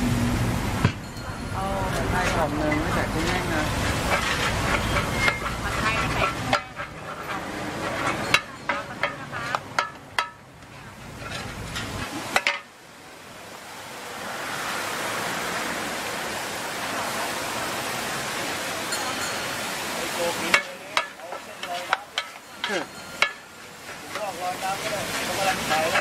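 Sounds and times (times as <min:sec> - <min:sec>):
steady sizzling hiss: 0:00.0 - 0:26.0
metal spatulas clinking on griddle: 0:01.0 - 0:10.4, 0:20.4 - 0:26.0.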